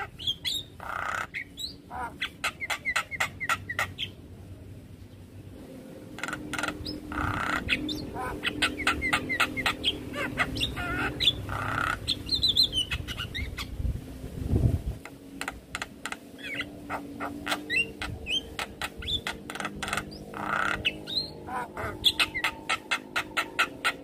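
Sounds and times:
myna bird calling: 0.0s - 4.2s, 6.0s - 13.8s, 15.0s - 24.0s.

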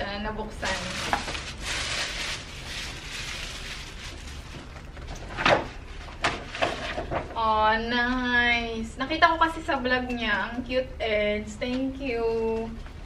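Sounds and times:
tissue paper rustling: 0.6s - 5.2s.

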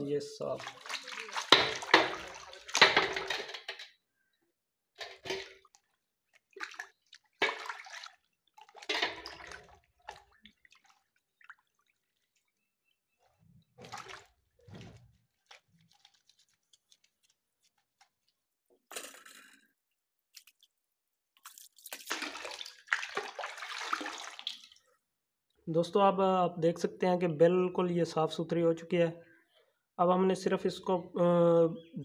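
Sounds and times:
water splashing in a basin: 0.4s - 3.8s, 5.0s - 18.3s, 21.4s - 25.0s.

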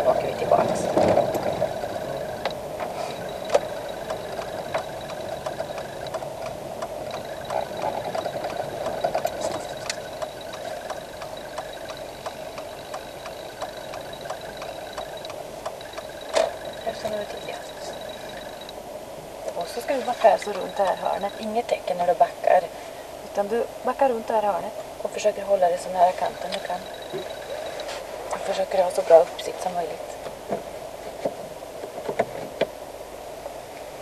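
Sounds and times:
car engine running: 0.0s - 18.7s
light ticks: 3.2s - 18.8s.

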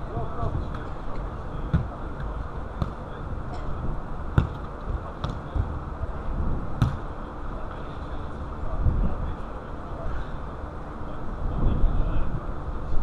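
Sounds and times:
football thumps on turf: 4.4s - 5.8s, 6.8s - 7.0s.

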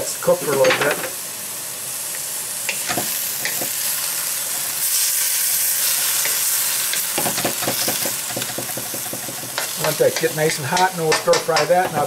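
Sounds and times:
vegetables sizzling in a wok: 0.0s - 12.0s
spatula scraping a wok: 2.7s - 10.9s.

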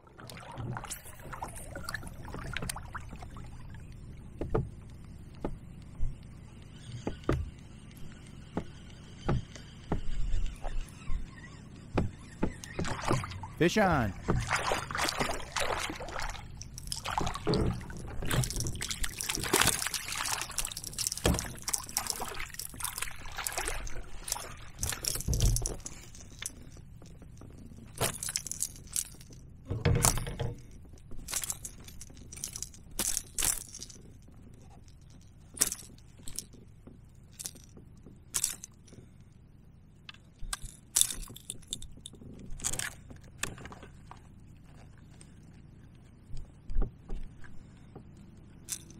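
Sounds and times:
fish splashing and thrashing in water: 0.0s - 3.7s, 12.7s - 13.5s, 14.2s - 26.8s.

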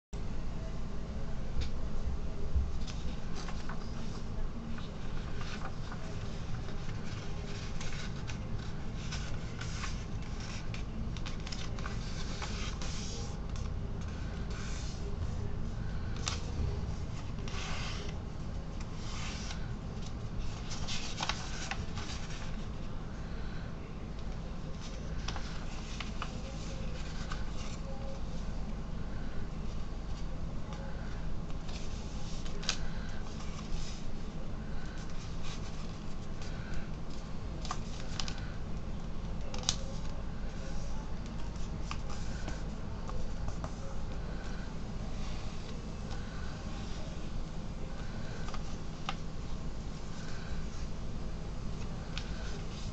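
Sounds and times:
steady low hum: 0.2s - 52.9s
crisp paper crackles: 2.8s - 22.9s, 24.2s - 28.4s, 30.1s - 51.0s
paper rustling and folding: 2.8s - 23.6s, 24.2s - 52.9s.

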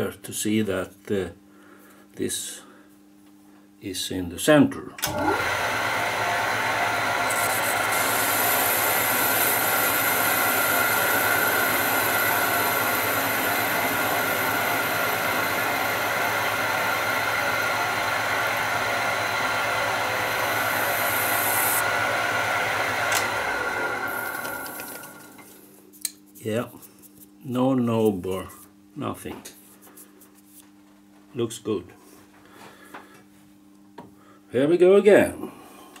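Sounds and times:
lathe motor and gear hum: 5.0s - 25.5s
high cutting hiss: 20.8s - 21.8s.

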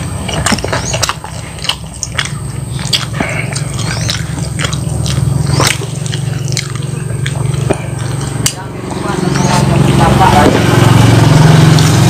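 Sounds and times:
wet mouth smacking: 0.0s - 8.7s
chewing crispy fried chicken: 0.0s - 12.0s
steady low hum: 0.0s - 12.0s.

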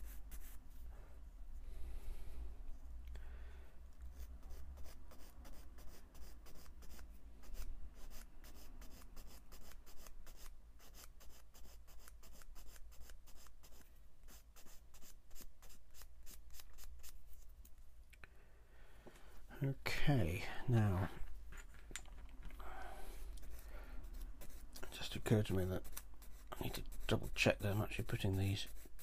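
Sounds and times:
sanding stick scraping plastic: 23.3s - 29.0s.

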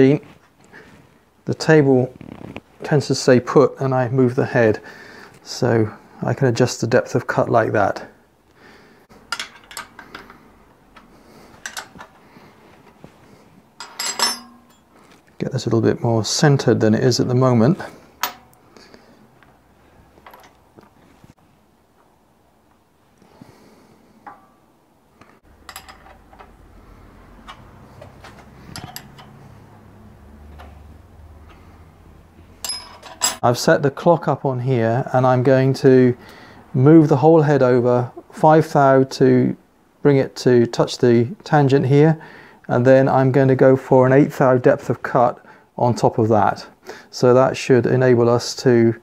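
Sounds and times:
low steady hum: 9.2s - 36.4s
metal clicks and clinks: 9.3s - 10.4s, 11.0s - 12.1s, 13.8s - 14.9s, 25.6s - 26.6s, 27.4s - 29.5s, 32.6s - 33.4s.

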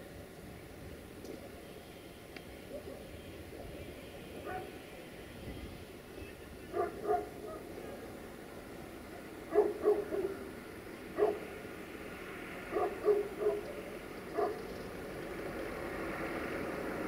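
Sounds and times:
dog barking: 4.4s - 4.8s, 6.7s - 8.0s, 9.5s - 10.5s, 11.2s - 11.5s, 12.7s - 14.7s.

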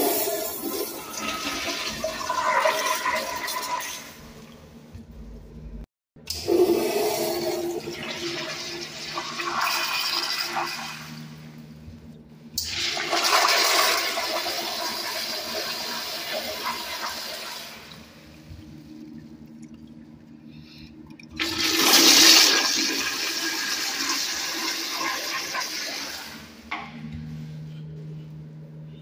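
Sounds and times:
toilet flushing: 0.0s - 4.6s, 6.3s - 11.6s, 12.6s - 19.2s, 21.3s - 26.7s.

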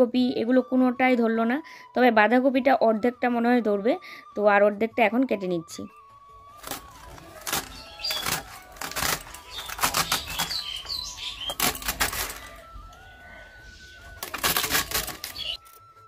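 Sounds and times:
blade slicing cabbage: 6.6s - 12.5s, 14.2s - 15.6s.

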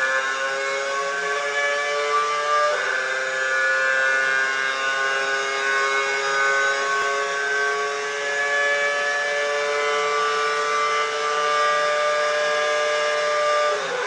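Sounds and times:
racing car engine at full throttle: 0.0s - 14.0s.

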